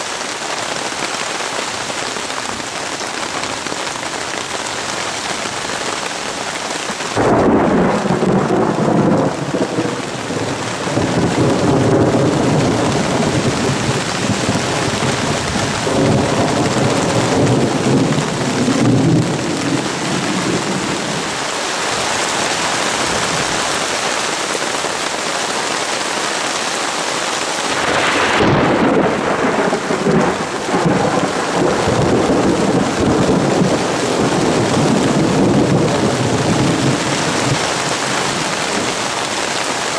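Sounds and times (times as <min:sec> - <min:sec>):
heavy rain on water: 0:00.0 - 0:39.9
thunder rumbling: 0:07.1 - 0:21.4, 0:27.7 - 0:39.0.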